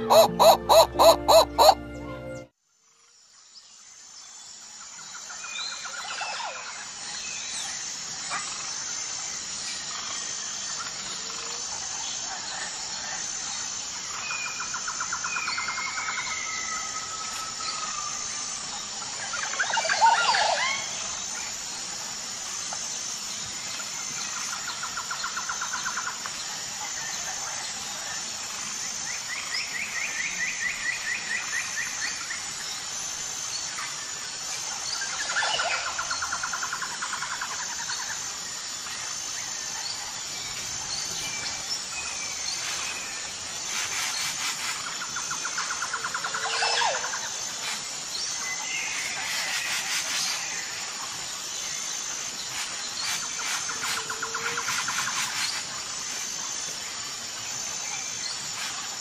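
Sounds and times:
repeated high bird note: 0:00.0 - 0:02.5.

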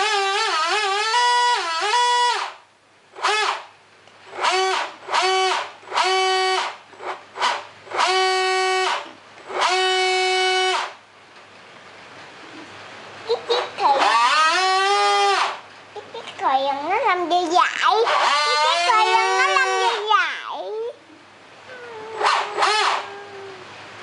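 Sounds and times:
brassy horn blasts: 0:07.4 - 0:10.9.

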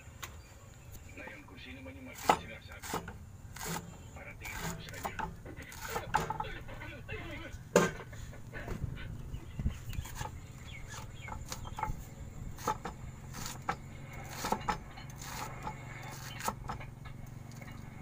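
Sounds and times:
cleaver chopping on wooden board: 0:02.2 - 0:03.9, 0:04.5 - 0:06.5, 0:10.0 - 0:12.0, 0:12.6 - 0:16.9
chickens clucking: 0:04.5 - 0:16.9.

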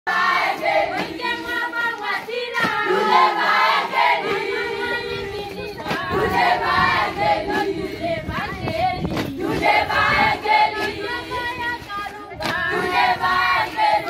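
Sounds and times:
students singing and chanting: 0:00.1 - 0:14.0.

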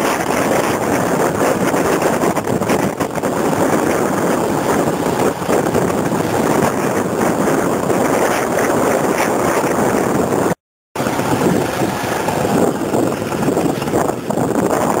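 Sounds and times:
wind buffeting microphone: 0:00.0 - 0:15.0
motorbike engine: 0:11.0 - 0:14.9
traffic: 0:11.0 - 0:15.0.

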